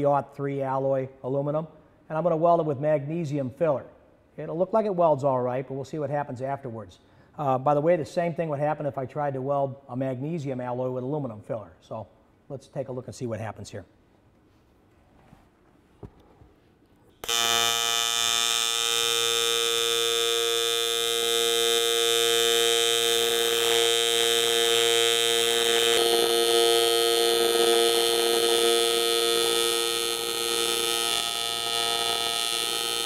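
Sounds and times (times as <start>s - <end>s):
welding arc buzzing: 17.2s - 33.0s.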